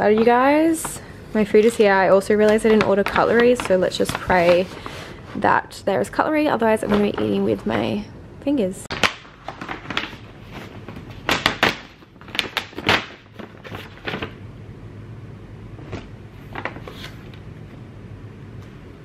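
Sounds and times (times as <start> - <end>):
paper bag rustling: 0.1 - 5.2, 8.9 - 14.4, 15.8 - 17.4.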